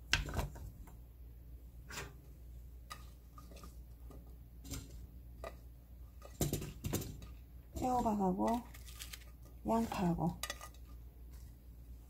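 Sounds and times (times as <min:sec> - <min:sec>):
vegetables tapping metal pot: 0:04.6 - 0:08.8.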